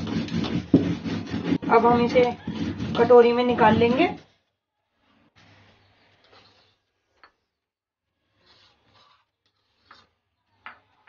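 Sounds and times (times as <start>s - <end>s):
spoon scraping stone slab: 0.0s - 4.2s.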